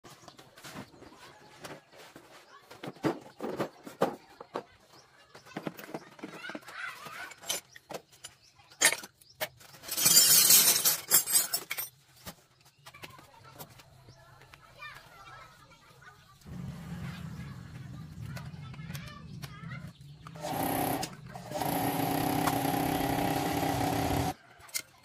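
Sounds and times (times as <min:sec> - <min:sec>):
metal tools clattering: 0:07.0 - 0:12.4.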